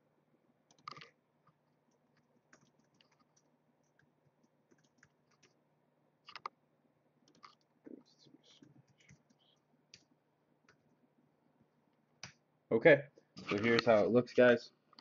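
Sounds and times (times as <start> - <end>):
keyboard and mouse clicking: 0.7 - 1.2, 1.9 - 4.1, 4.7 - 5.6, 6.2 - 6.6, 7.2 - 7.7, 8.6 - 10.8.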